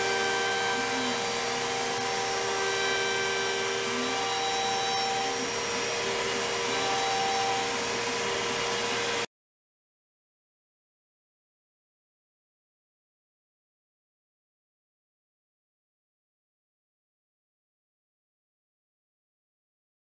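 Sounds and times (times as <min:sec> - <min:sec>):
router spindle cutting wood: 0:00.0 - 0:09.3.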